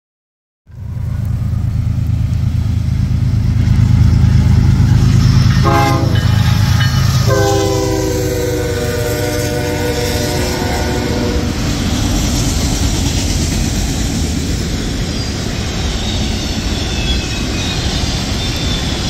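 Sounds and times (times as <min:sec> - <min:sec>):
diesel locomotive rumbling: 0:00.7 - 0:19.0
train air horn blasts: 0:05.4 - 0:11.7.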